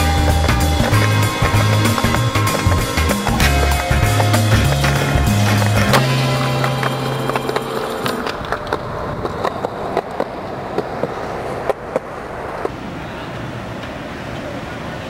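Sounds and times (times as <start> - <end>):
music: 0.0 - 8.3
skateboard wheels rolling on pavement: 0.0 - 15.0.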